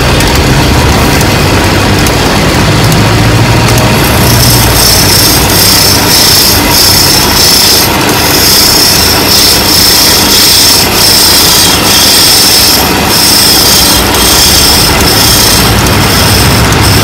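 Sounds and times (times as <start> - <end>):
chisel scraping spinning wood: 0.0 - 17.0.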